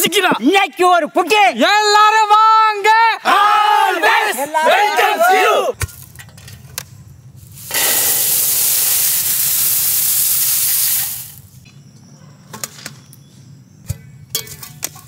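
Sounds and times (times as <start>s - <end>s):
dry flakes pouring into steel bowl: 7.5s - 11.4s.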